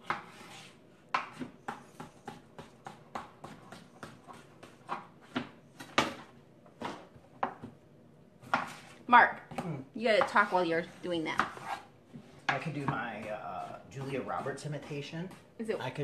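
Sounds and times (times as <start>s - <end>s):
knife chopping on plastic board: 0.0s - 7.8s, 8.4s - 8.9s.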